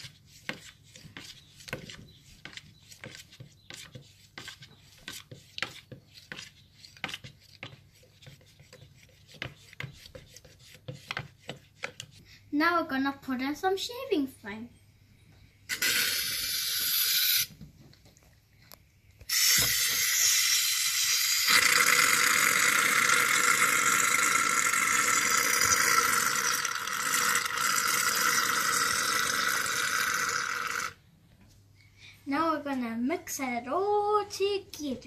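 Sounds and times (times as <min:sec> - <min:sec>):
aerosol can hissing: 0:15.7 - 0:17.5, 0:19.3 - 0:21.9.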